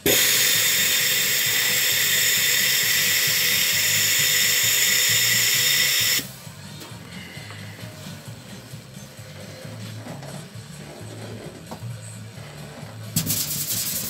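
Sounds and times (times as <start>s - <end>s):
sandblasting gun hissing: 0.0s - 6.3s, 13.2s - 14.0s.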